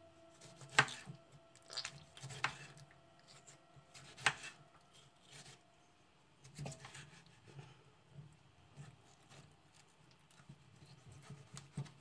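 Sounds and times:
knife slicing a tomato: 0.3 - 1.2, 1.8 - 5.6, 6.4 - 7.5, 8.8 - 12.0.

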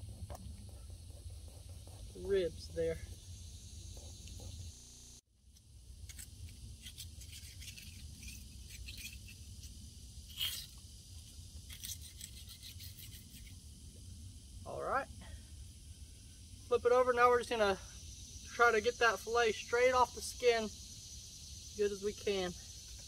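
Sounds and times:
low steady rumble: 0.0 - 7.1
knife scratching on bone: 6.8 - 9.4, 10.3 - 10.8, 11.7 - 13.6.

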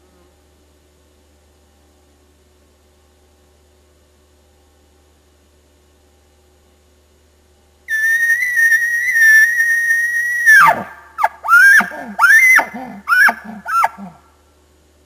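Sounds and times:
elk bugle call imitation: 7.9 - 14.2.

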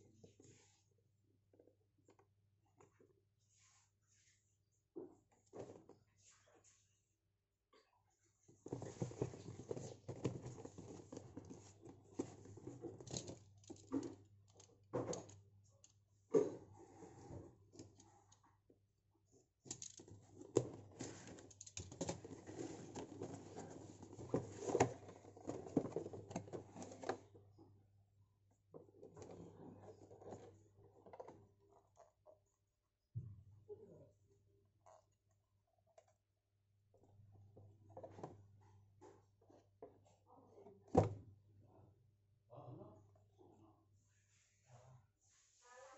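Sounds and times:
cardboard scraping and rustling: 8.6 - 13.4, 20.2 - 27.2.

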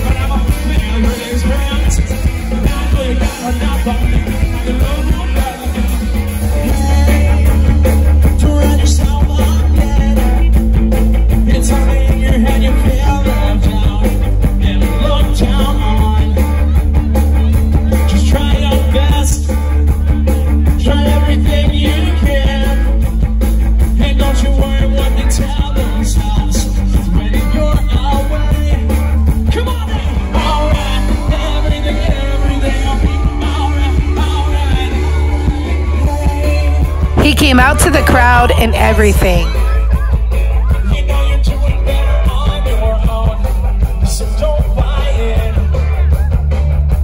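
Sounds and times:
bass guitar: 0.0 - 47.0
drum kit beat: 37.0 - 39.7.

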